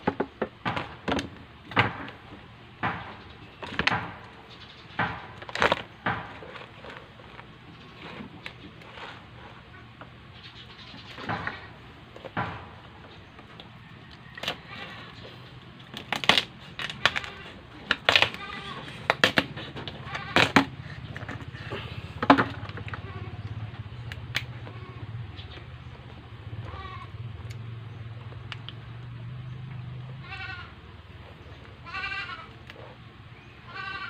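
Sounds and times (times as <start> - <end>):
low steady hum: 0.0 - 34.0
lobster shell cracking: 15.8 - 21.3.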